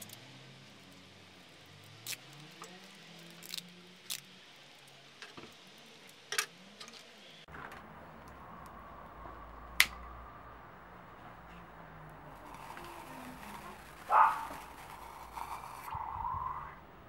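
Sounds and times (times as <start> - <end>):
hands wrapping tape: 2.0 - 4.3, 12.4 - 15.9.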